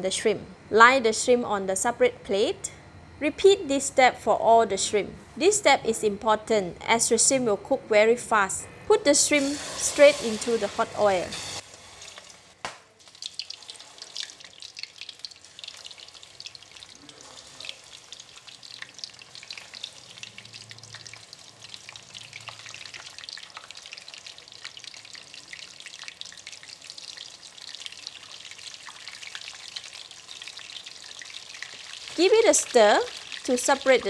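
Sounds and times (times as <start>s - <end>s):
shrimp deep-frying in oil: 9.2s - 34.0s.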